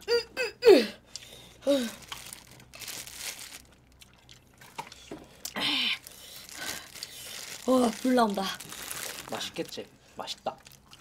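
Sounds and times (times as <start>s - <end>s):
plastic gloves crinkling: 1.8s - 4.1s, 5.7s - 11.0s.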